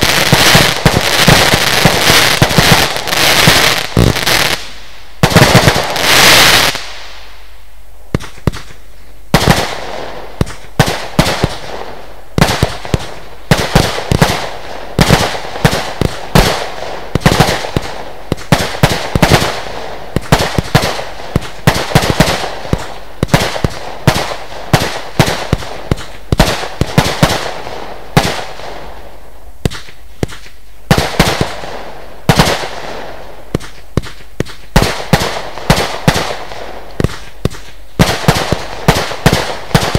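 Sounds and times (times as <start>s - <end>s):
fireworks battery firing: 0.0s - 7.3s.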